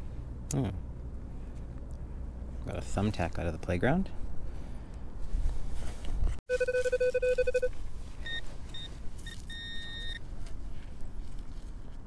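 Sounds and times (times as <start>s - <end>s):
pinpointer beeps: 6.5s - 7.7s, 8.3s - 10.2s.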